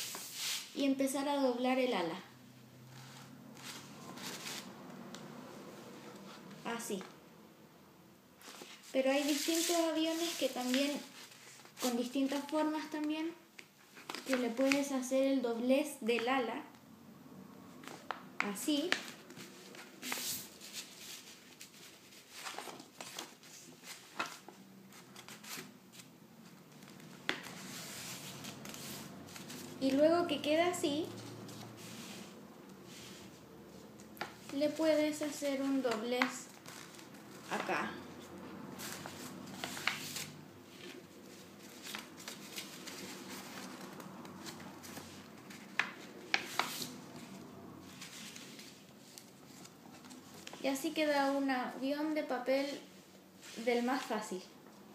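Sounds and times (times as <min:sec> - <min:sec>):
paper rustling and creasing: 0:02.9 - 0:05.1, 0:08.4 - 0:13.1, 0:13.8 - 0:15.0, 0:18.8 - 0:50.8.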